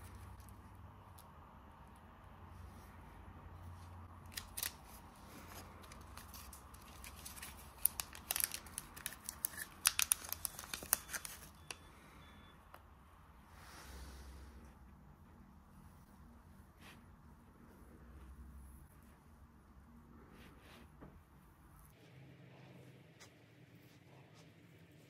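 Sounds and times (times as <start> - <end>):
paper and plastic crinkling: 4.3 - 11.8.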